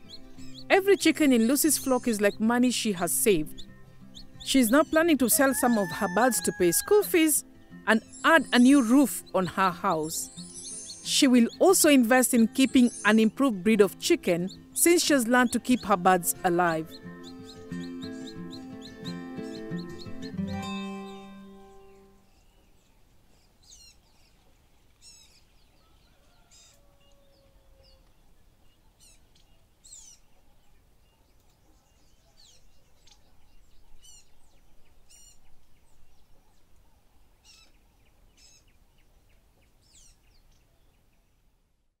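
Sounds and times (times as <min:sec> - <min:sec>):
small birds chirping: 0:00.0 - 0:41.5
soft outdoor hiss: 0:00.0 - 0:42.0
music track: 0:00.2 - 0:22.2.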